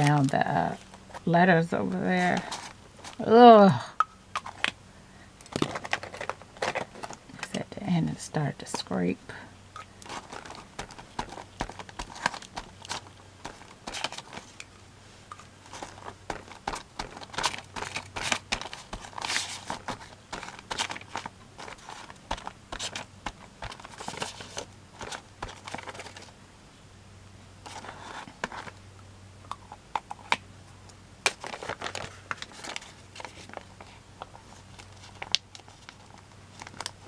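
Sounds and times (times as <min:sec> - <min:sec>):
paper bag crinkling and rustling: 0:05.5 - 0:07.3, 0:10.0 - 0:14.6, 0:15.6 - 0:26.3, 0:31.3 - 0:37.0.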